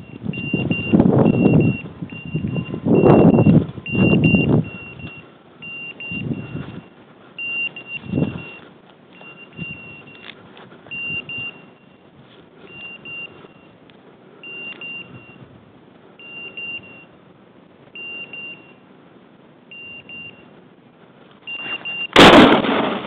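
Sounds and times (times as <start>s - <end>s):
short high beeps: 0.0s - 8.6s, 9.2s - 10.3s, 10.9s - 12.0s, 12.7s - 13.8s, 14.4s - 15.4s, 16.2s - 17.1s, 18.0s - 18.8s, 19.7s - 20.5s, 21.5s - 22.3s.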